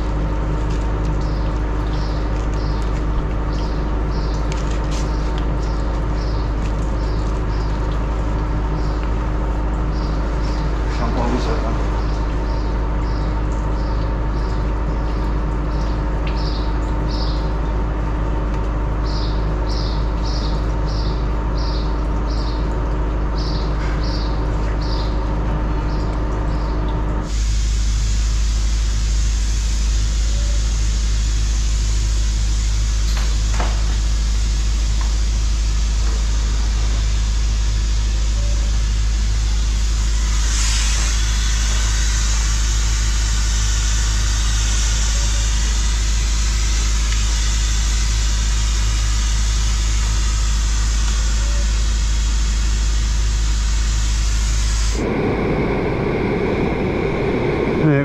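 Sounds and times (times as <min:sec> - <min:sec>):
compressor humming: 0:00.0 - 0:58.0
steady hiss: 0:39.5 - 0:58.0.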